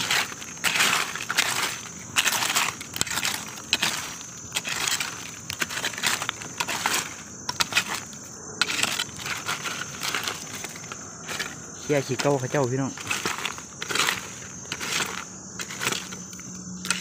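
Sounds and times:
dry leaves crackling and rustling: 0.0s - 17.0s.

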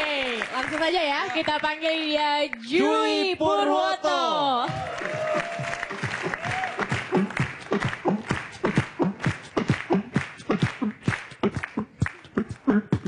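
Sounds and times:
beatboxing vocal percussion: 5.6s - 13.0s.

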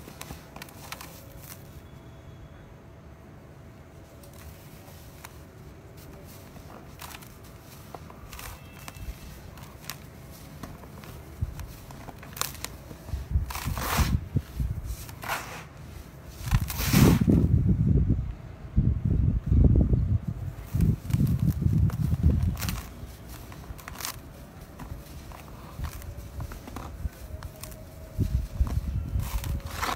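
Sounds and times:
gritty block crunching: 4.4s - 17.4s, 20.6s - 29.9s
sand pouring onto pile: 15.1s - 15.9s, 16.6s - 17.3s.

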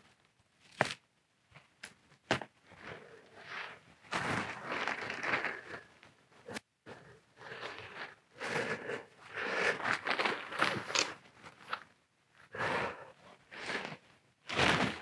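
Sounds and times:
tent fabric rustling: 2.8s - 5.8s, 9.5s - 11.8s, 13.5s - 15.0s.

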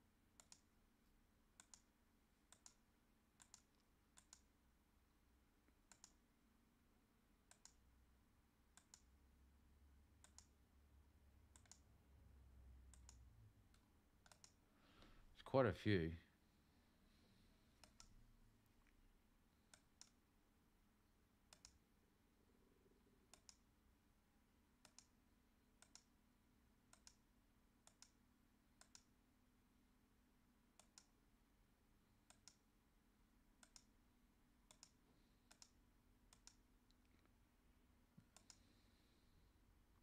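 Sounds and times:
faint steady hum: 0.0s - 40.0s
computer mouse clicks: 0.4s - 0.7s, 1.5s - 1.9s, 2.5s - 2.8s, 3.4s - 4.5s, 5.6s - 6.2s, 7.4s - 7.9s, 8.7s - 9.1s, 10.2s - 10.6s, 11.5s - 11.9s, 12.9s - 14.6s, 17.8s - 18.2s, 19.7s - 20.2s, 21.5s - 21.8s, 23.3s - 23.7s, 24.8s - 25.2s, 25.8s - 26.2s, 26.9s - 28.2s, 28.8s - 29.1s, 30.8s - 31.2s, 32.2s - 32.7s, 33.6s - 34.0s, 34.6s - 37.3s, 38.2s - 38.7s.

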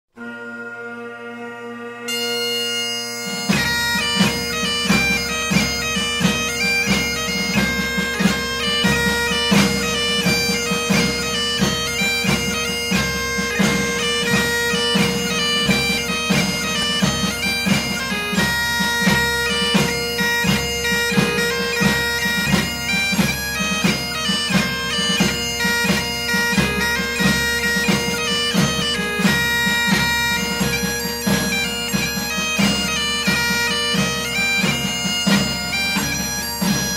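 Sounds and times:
melody over held drone: 0.2s - 3.2s
regular drum beat: 3.2s - 36.9s.

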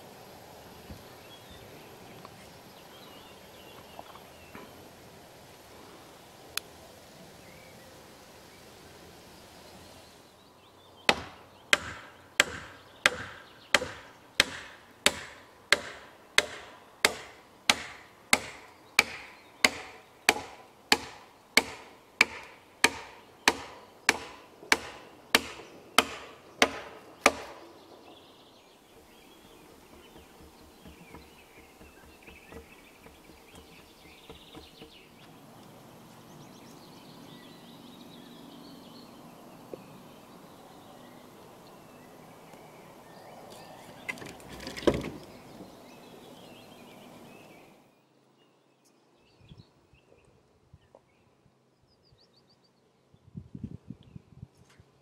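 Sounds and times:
hammer pounding wooden beams: 11.1s - 27.6s, 29.7s - 35.2s.

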